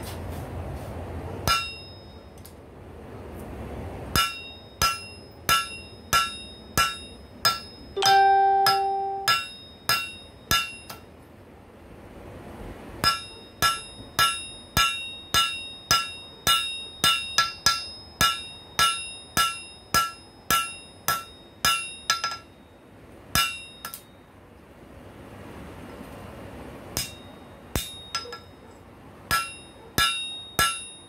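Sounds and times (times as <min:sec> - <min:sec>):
hammer striking steel on anvil: 0:01.4 - 0:02.4, 0:04.1 - 0:11.1, 0:13.0 - 0:22.7, 0:23.3 - 0:24.2, 0:26.9 - 0:31.0.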